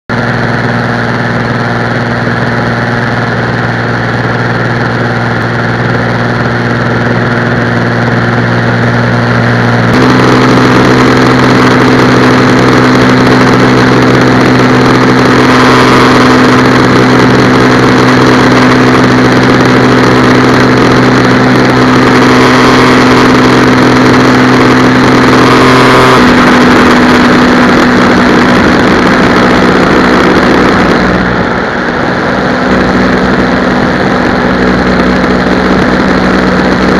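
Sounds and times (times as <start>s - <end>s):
light aircraft engine droning: 0.1s - 36.9s
wind rushing over microphone: 0.1s - 36.9s.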